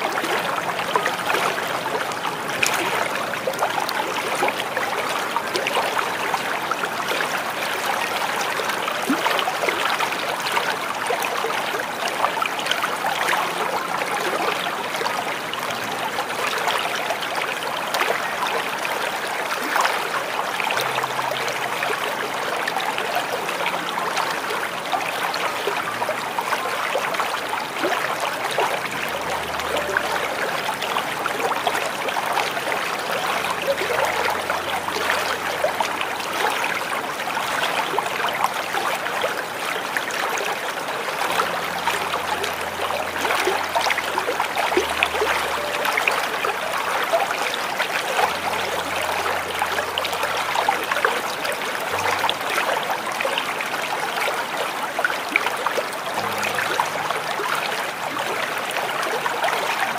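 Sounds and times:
small waterfall splashing: 0:00.0 - 0:59.9
faint low tones: 0:27.8 - 0:36.4, 0:40.9 - 0:53.1.

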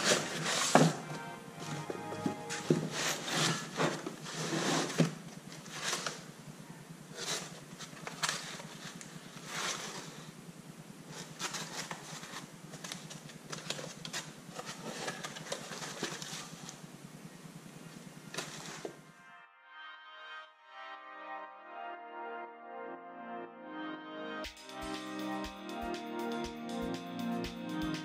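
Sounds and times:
packaging rustling and scraping: 0:00.0 - 0:06.3, 0:07.1 - 0:10.3, 0:11.1 - 0:16.8, 0:18.3 - 0:19.0
steady low hum: 0:00.0 - 0:19.2.

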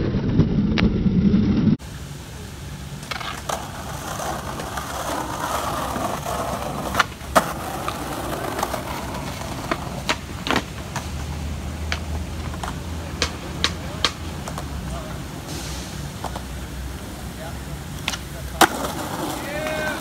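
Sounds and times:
skateboard wheels rolling on concrete: 0:00.0 - 0:20.0
skateboard clacks: 0:03.0 - 0:15.2, 0:17.9 - 0:20.0.

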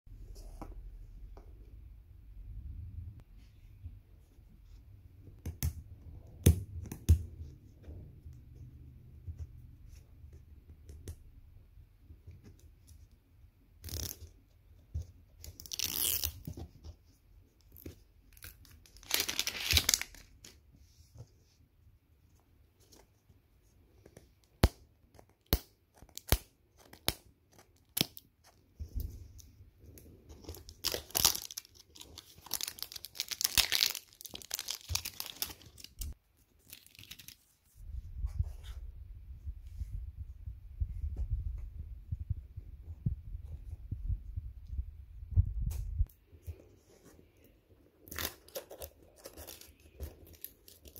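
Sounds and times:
plastic shrink-wrap crinkling: 0:18.4 - 0:20.4, 0:30.5 - 0:37.5.

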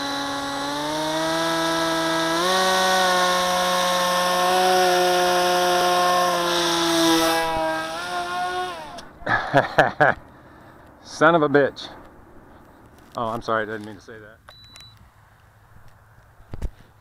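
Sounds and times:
electric motor and propeller whine: 0:00.0 - 0:09.2.

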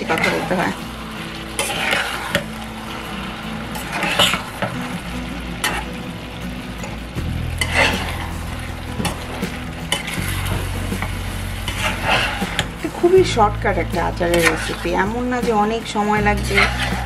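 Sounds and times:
low sizzle: 0:00.0 - 0:17.0
spoon scraping a steel pan: 0:14.3 - 0:15.1.

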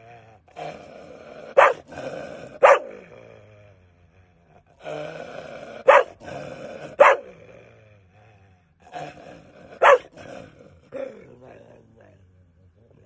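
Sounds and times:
dog growling: 0:00.0 - 0:13.0
dog barking: 0:01.6 - 0:01.8, 0:02.6 - 0:03.0, 0:05.8 - 0:06.2, 0:07.0 - 0:07.3, 0:09.8 - 0:10.1.

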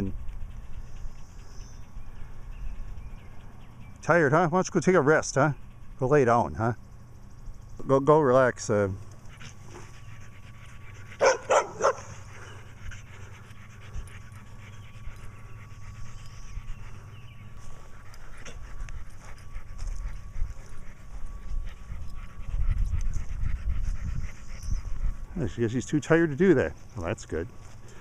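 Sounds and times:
dog panting: 0:00.0 - 0:07.6, 0:08.4 - 0:28.0
dog barking: 0:11.2 - 0:12.6.

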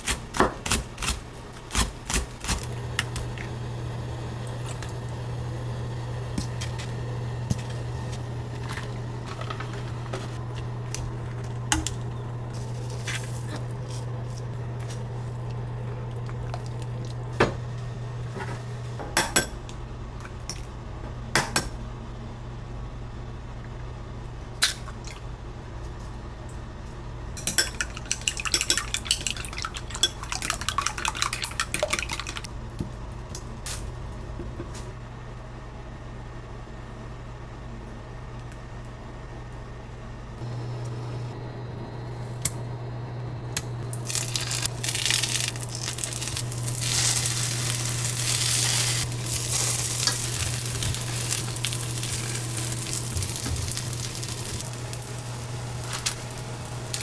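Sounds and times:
low hum of cooktop: 0:00.0 - 0:57.0
chopsticks beating eggs in bowl: 0:27.4 - 0:32.5
utensils clinking on bowls: 0:27.4 - 0:32.5.

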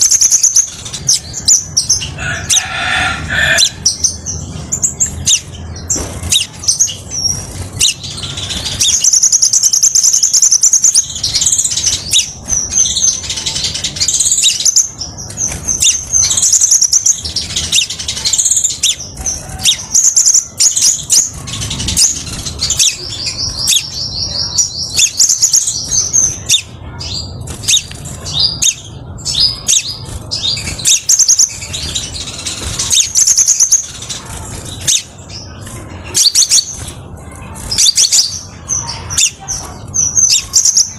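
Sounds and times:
bird chirping and trilling: 0:00.0 - 0:40.9.

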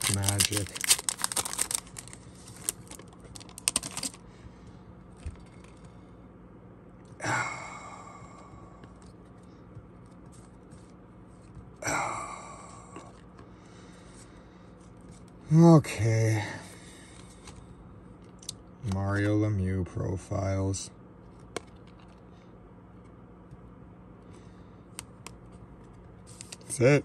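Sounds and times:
foil wrapper crinkling: 0:00.0 - 0:04.2.

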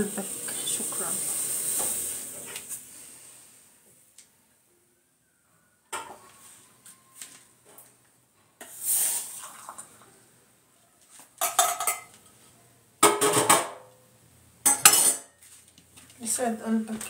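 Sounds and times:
utensils and dishes clattering: 0:11.4 - 0:12.2, 0:13.0 - 0:13.8, 0:14.6 - 0:15.4.

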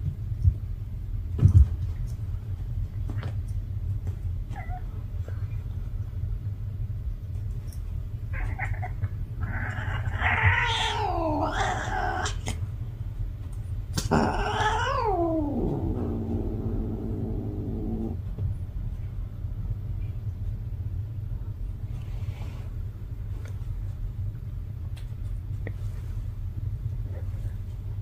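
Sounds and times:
cat yowling: 0:08.3 - 0:12.5, 0:14.1 - 0:18.2.

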